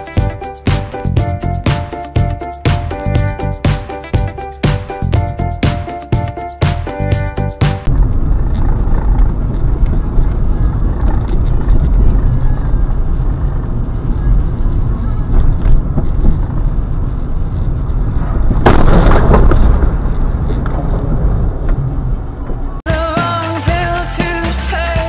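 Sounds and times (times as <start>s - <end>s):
road and engine rumble: 0.0s - 24.7s
loud car crash: 18.6s - 20.0s.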